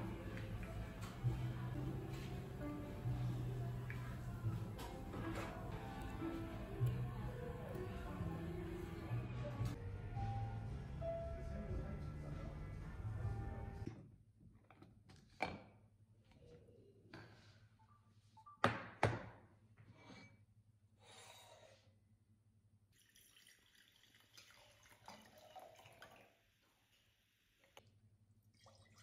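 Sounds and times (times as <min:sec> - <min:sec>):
wine pouring and fizzing: 0:22.9 - 0:26.9, 0:28.4 - 0:29.0.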